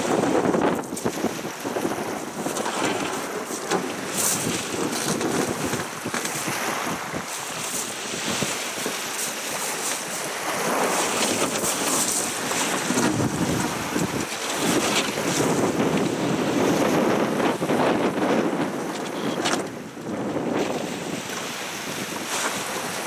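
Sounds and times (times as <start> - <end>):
waves slapping against boat: 0.0 - 23.0
wind buffeting microphone: 0.0 - 23.0.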